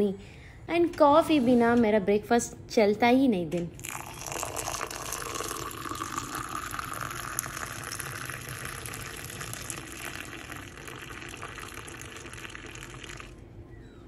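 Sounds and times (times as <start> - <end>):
milk pouring and splashing into mug: 3.8 - 13.4.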